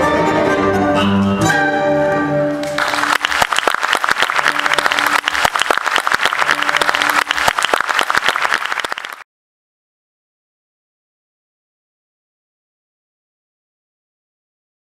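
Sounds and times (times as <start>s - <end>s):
audience applauding: 2.6s - 9.2s.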